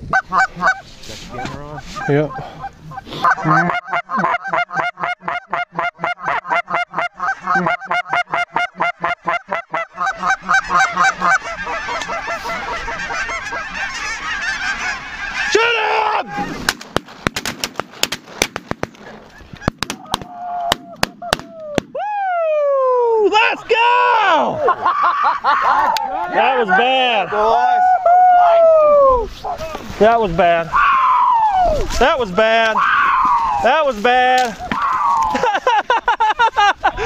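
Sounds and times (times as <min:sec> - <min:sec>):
geese honking: 0:00.1 - 0:16.7, 0:24.9 - 0:28.0
sharp cracks: 0:16.5 - 0:22.0.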